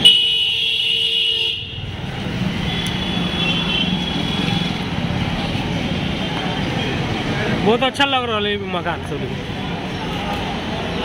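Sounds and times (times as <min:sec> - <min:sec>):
vehicle horn: 0:00.0 - 0:01.8, 0:02.7 - 0:04.6
motorcycle and scooter traffic: 0:00.0 - 0:11.0.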